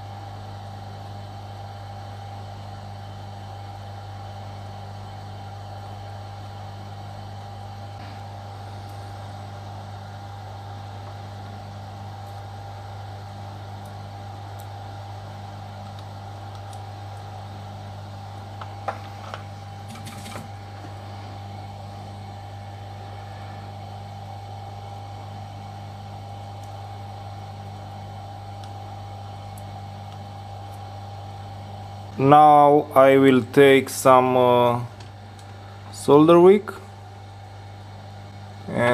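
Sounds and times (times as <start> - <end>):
steady low hum: 0.0 - 38.9.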